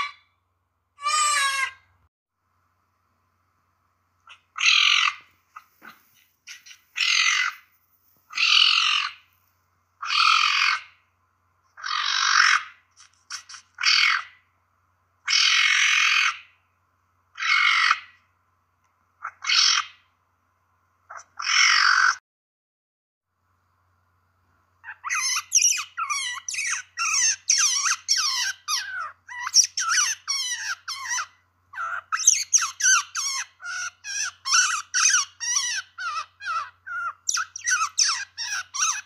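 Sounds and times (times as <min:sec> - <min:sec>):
wild cat harsh raspy calls: 0:04.3 - 0:07.7, 0:08.3 - 0:09.3, 0:10.0 - 0:11.0, 0:11.8 - 0:14.4, 0:15.3 - 0:16.5, 0:17.3 - 0:18.2, 0:19.2 - 0:20.0, 0:21.1 - 0:22.2, 0:24.8 - 0:39.0.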